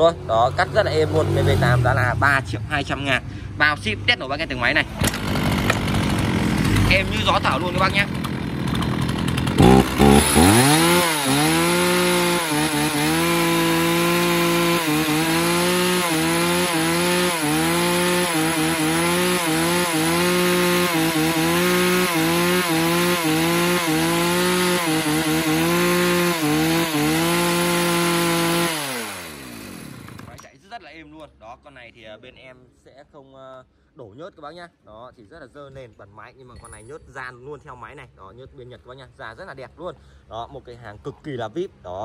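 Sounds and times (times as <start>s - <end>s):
chainsaw idling: 5.0s - 30.4s.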